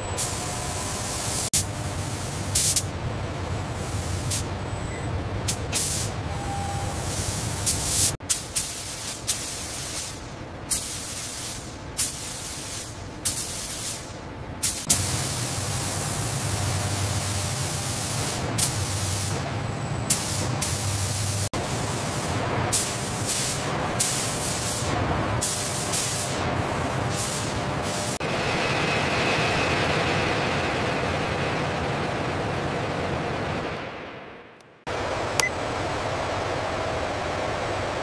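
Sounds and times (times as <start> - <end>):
low industrial hum: 0.0 - 8.4, 9.0 - 38.0
spray guns hissing: 0.2 - 2.9, 5.5 - 6.2, 6.9 - 19.4, 20.1 - 26.4.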